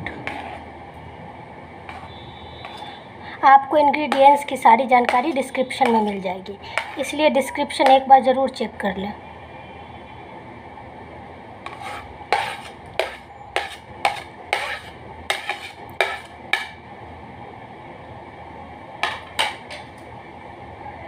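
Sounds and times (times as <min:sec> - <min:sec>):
metal spoon scraping a plate: 0:00.1 - 0:00.7, 0:01.9 - 0:03.0, 0:05.1 - 0:07.2, 0:11.6 - 0:16.8.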